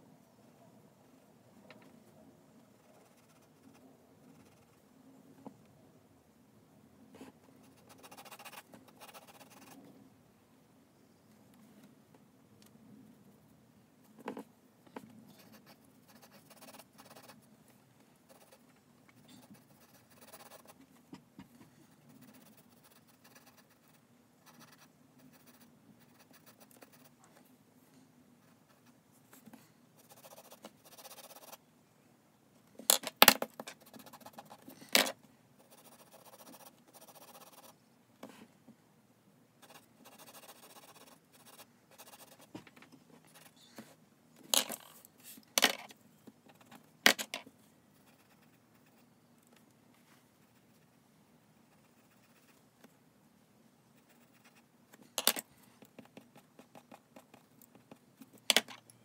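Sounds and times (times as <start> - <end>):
pencil scratching on paper: 2.8 - 4.8, 7.2 - 9.8, 15.3 - 17.4, 18.3 - 18.6, 19.2 - 20.8, 21.9 - 27.1, 30.0 - 31.6, 33.7 - 34.8, 35.6 - 37.8, 39.6 - 42.5, 43.2 - 43.6, 48.0 - 49.1.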